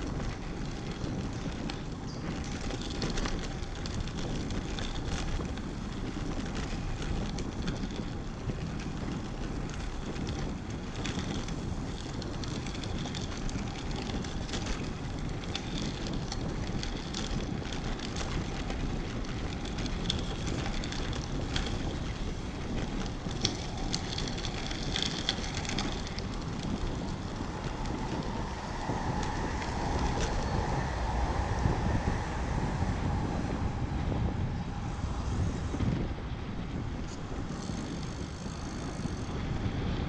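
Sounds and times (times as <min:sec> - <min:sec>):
bike tyre noise: 0:00.0 - 0:40.0
wind rushing over microphone: 0:00.0 - 0:40.0
steady hum: 0:25.5 - 0:37.3.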